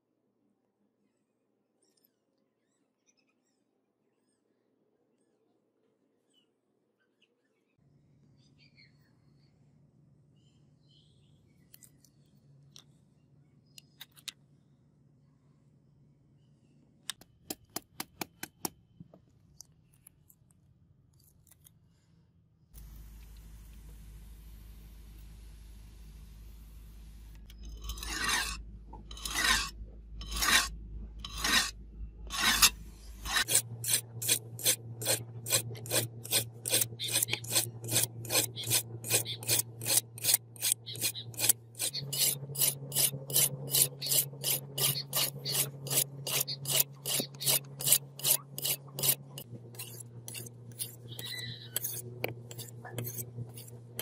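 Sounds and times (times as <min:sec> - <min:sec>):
cleaver scraping on sharpening stone: 0:27.5 - 0:54.0.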